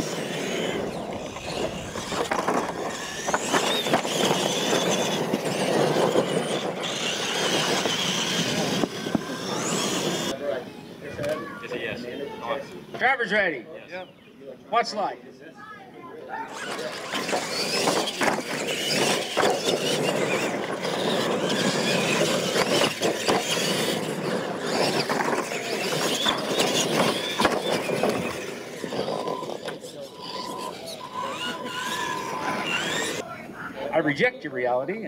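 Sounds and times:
toy truck motors whining: 0.0 - 10.4, 16.4 - 33.3.

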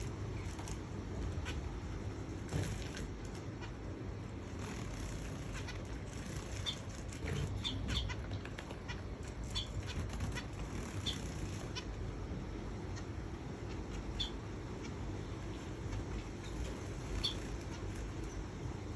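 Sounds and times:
wing flutters: 0.0 - 12.3, 15.7 - 18.6
finches chirping: 0.0 - 18.9.

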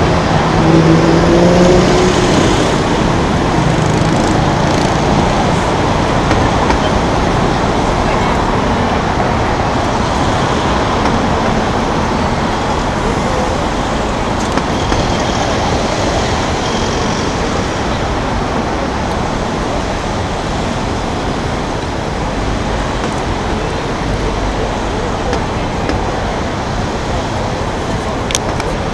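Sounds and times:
city traffic: 0.0 - 28.9
crowd of pedestrians talking: 0.0 - 28.9.

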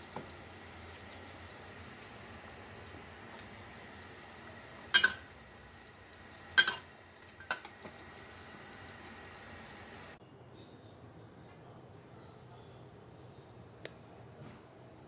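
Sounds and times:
spatula clanking on wok: 4.9 - 5.3, 6.6 - 7.8.

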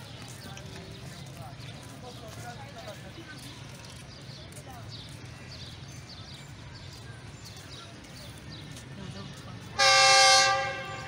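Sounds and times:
locomotive air horn blast: 9.8 - 11.0.

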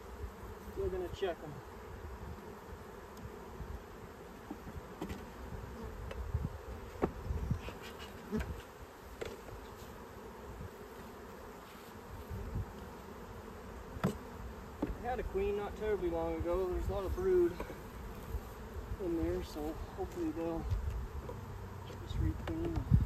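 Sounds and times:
bees buzzing: 0.0 - 23.0
wooden hive boxes knocking: 6.0 - 7.3, 14.0 - 15.2, 20.1 - 23.0.

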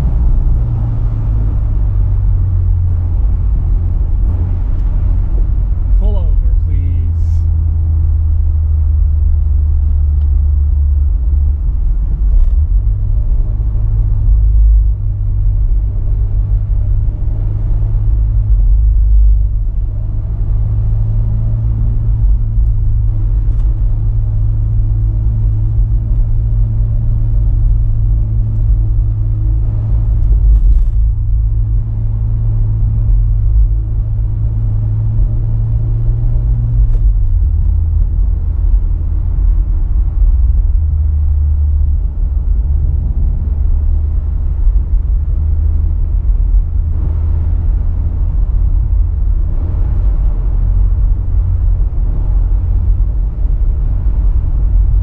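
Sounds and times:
car engine running: 0.0 - 55.0
road rumble: 0.0 - 55.0.

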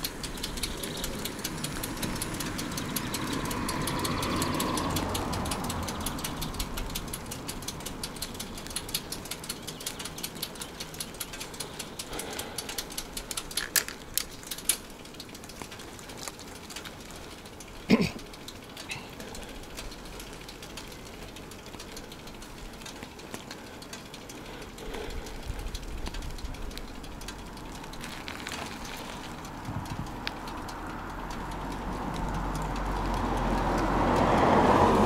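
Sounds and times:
bicycle ticking and rattling: 0.0 - 35.0
vehicle passing: 0.0 - 35.0.

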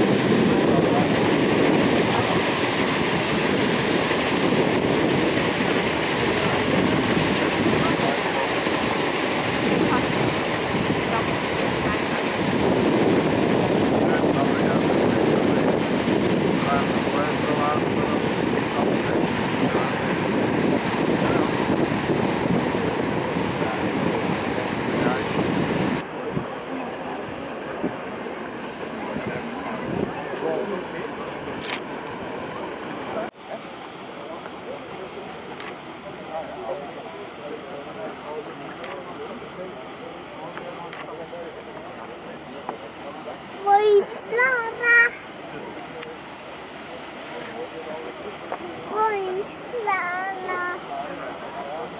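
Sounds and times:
wind buffeting microphone: 0.0 - 26.6, 27.2 - 30.7
paddle wheels churning water: 0.0 - 51.9.

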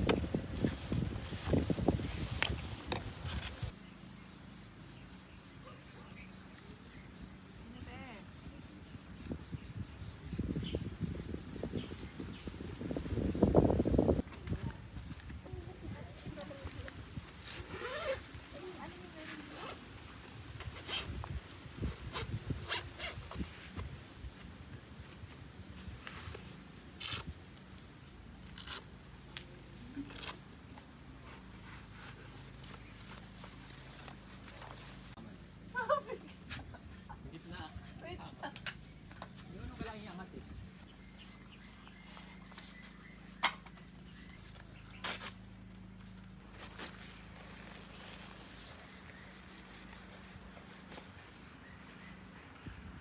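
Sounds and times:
canvas rustling: 0.0 - 3.8, 13.4 - 38.3, 44.2 - 53.0.

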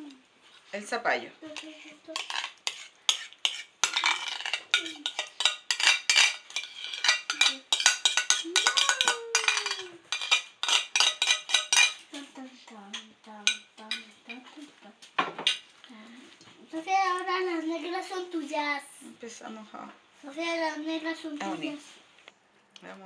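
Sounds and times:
spoon scraping and clinking on plate: 1.6 - 12.1.

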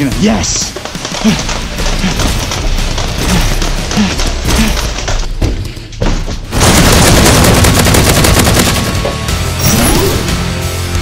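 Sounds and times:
music: 0.0 - 11.0
rapid-fire burst: 6.5 - 9.2.

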